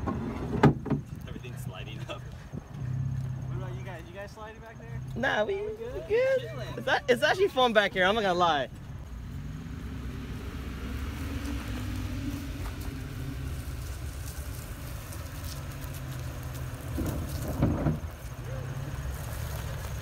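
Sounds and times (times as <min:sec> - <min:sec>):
pickup engine running: 0:00.0 - 0:20.0.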